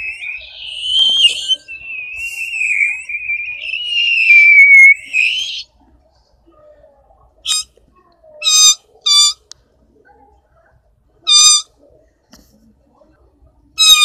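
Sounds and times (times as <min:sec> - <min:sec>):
person squeaking with mouth: 0:11.3 - 0:11.6.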